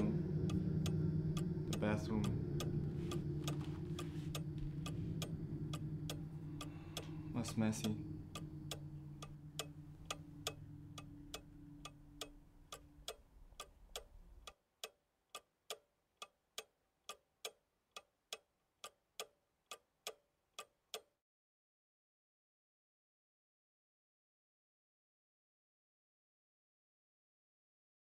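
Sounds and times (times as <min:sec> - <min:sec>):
low room hum: 0:00.0 - 0:14.5
faint steady ticking: 0:00.0 - 0:21.2.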